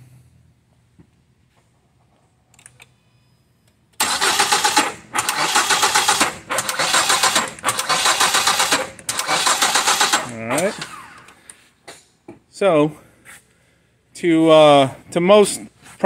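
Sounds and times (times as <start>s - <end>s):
engine cranking without firing: 4.0s - 11.5s.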